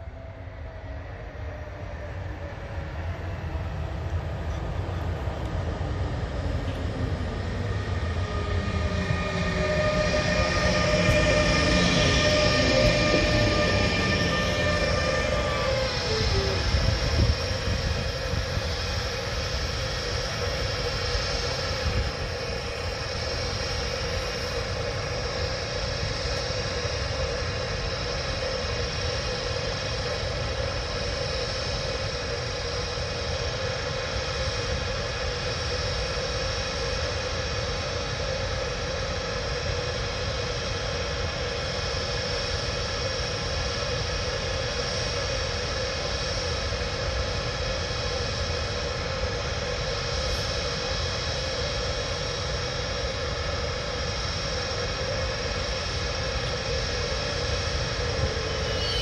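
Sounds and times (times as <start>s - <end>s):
electric locomotive fans humming: 0.0s - 59.0s.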